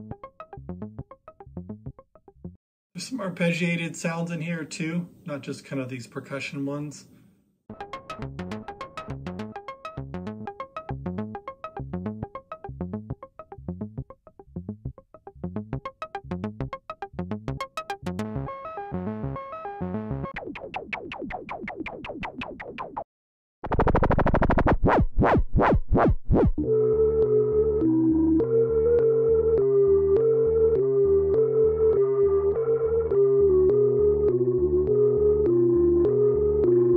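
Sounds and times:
synthesizer loops: 7.7 - 22.8, 26.6 - 36.9.

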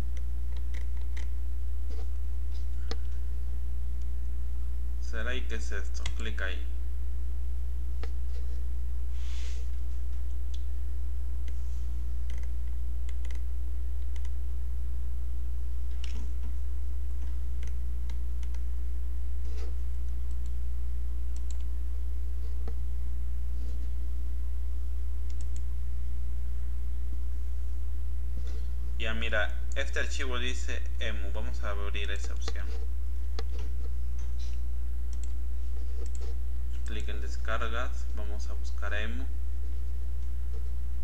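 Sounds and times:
low electrical hum: 0.0 - 41.0
computer mouse clicks: 0.1 - 1.3, 12.2 - 13.4, 14.0 - 14.4, 15.9 - 16.5, 17.2 - 18.6, 21.4 - 21.7, 25.3 - 25.7, 34.4 - 35.4, 36.0 - 37.2.

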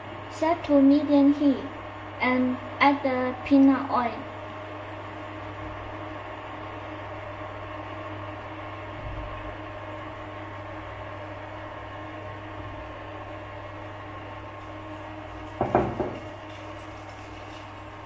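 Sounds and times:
cooktop electric hum and fan whir: 0.0 - 18.0
knock and clatter: 15.6 - 16.6.

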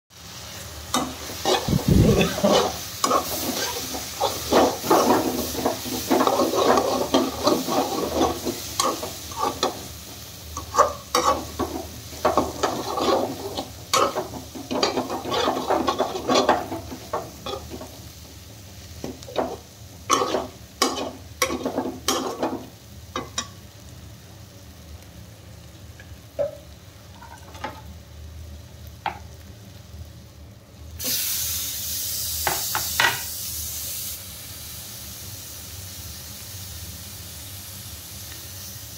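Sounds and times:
loud sizzling hiss: 0.1 - 27.1, 27.9 - 38.9
food sizzling: 0.1 - 38.9
metal spatula scraping a pan: 1.0 - 9.8, 10.6 - 17.8, 19.3 - 22.6.

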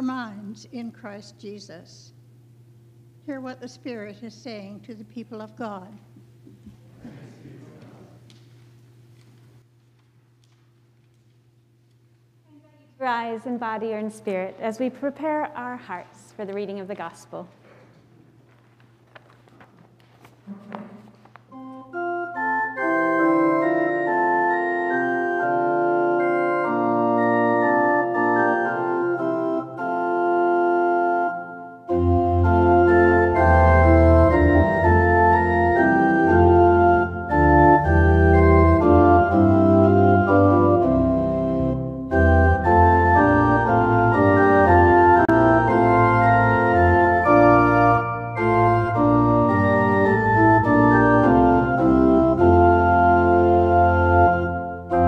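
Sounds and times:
church organ chords: 20.8 - 55.0
deep organ pedal bass: 21.4 - 55.0.

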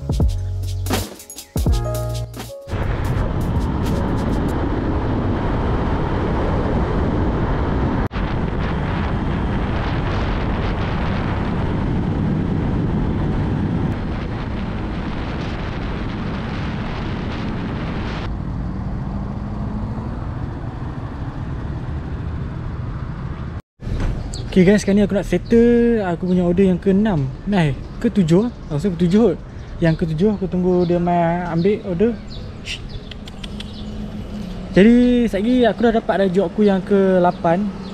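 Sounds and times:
wind rushing over microphone: 2.7 - 24.3, 29.3 - 37.9.

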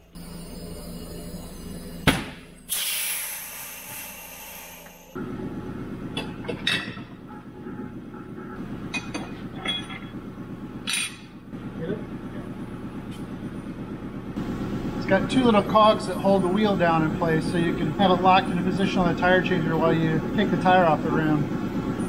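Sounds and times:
low machine hum: 0.0 - 22.0
loud air hiss: 2.7 - 5.2
metal clinks of wheel rim: 10.8 - 11.3.

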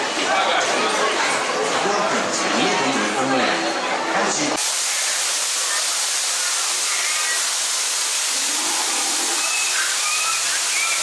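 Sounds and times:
falling water rushing: 4.5 - 11.0.

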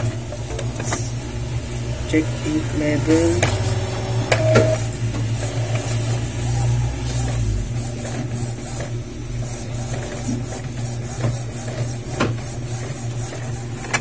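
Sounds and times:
inkjet printer printing: 0.0 - 14.0
low rumble: 0.6 - 7.8.

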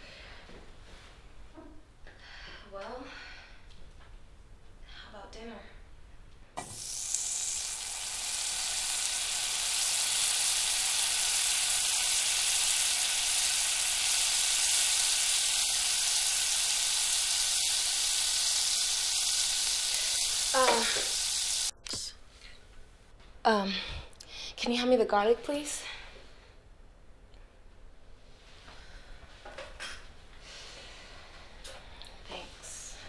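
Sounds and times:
sauce sizzling in a saucepan: 6.6 - 21.7.

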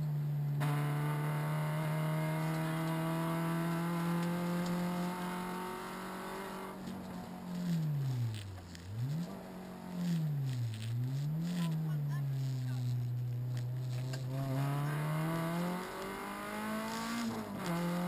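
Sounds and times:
car engine revving hard: 0.6 - 6.9, 13.4 - 18.0.

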